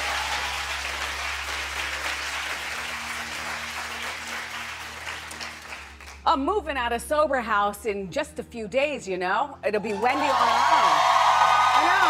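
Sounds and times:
audience applauding: 0.0s - 6.2s, 10.1s - 12.0s.

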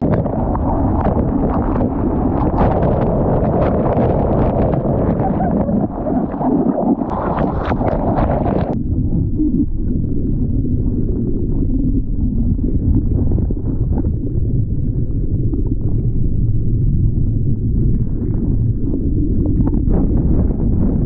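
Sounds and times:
water sloshing and splashing: 0.0s - 8.8s.

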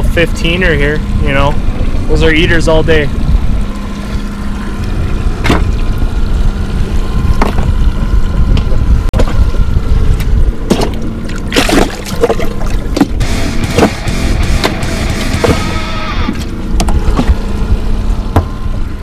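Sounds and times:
boat motor running: 0.0s - 19.0s
sharp knocks: 13.0s - 15.8s.

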